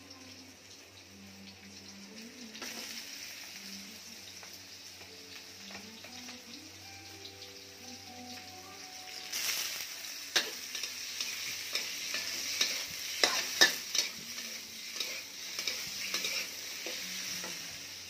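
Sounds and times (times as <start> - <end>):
food sizzling in a wok: 0.0 - 18.0
metal spatula scraping a wok: 10.3 - 17.7.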